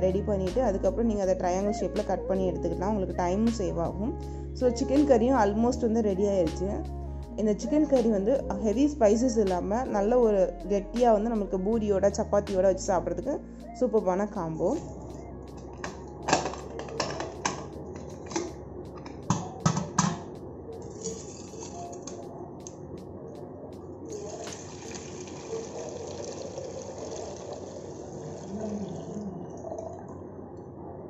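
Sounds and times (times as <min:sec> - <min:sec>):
metal can clinking: 0:15.8 - 0:20.3
liquid pouring into pot: 0:24.1 - 0:30.2.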